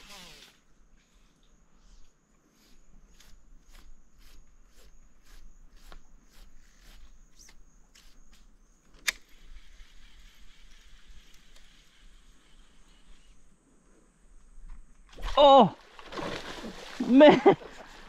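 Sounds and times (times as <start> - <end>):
fishing line pulled off reel: 0.0 - 0.7.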